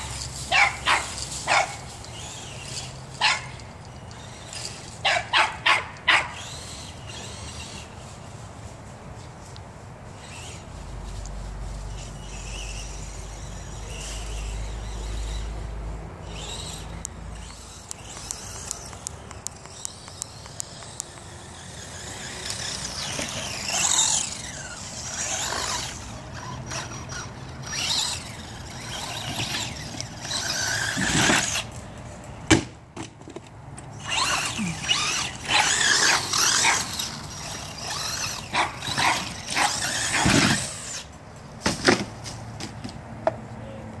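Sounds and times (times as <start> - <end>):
rc truck motor whine: 0.0 - 8.2, 10.1 - 10.7, 11.8 - 31.9, 33.8 - 41.2
tyre noise on dirt: 19.6 - 31.8, 32.4 - 43.4.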